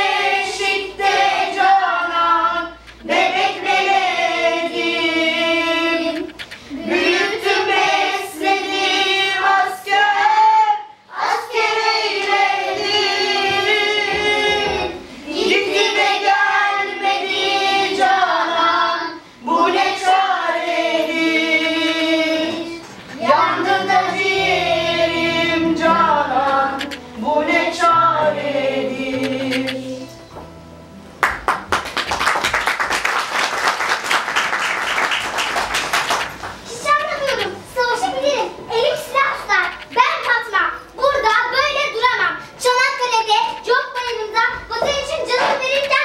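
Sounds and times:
low backing notes: 0:19.6 - 0:32.0.

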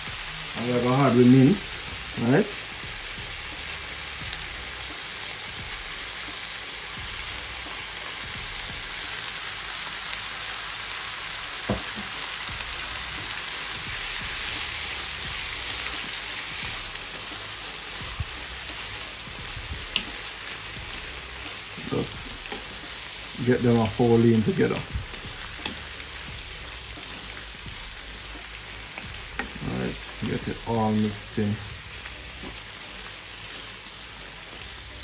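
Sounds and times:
meat sizzling in a pan: 0:00.0 - 0:35.0
wooden spoon knocking on pan: 0:11.6 - 0:12.1.

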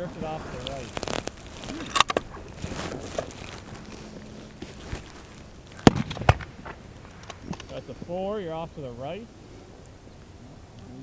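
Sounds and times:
rifle shots: 0:05.8 - 0:07.6.

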